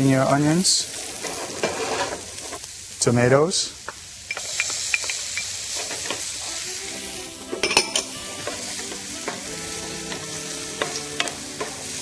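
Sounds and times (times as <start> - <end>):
vegetables sizzling in oil: 0.0 - 12.0
wooden spoon stirring in pan: 0.9 - 2.7, 4.3 - 6.5, 7.6 - 12.0.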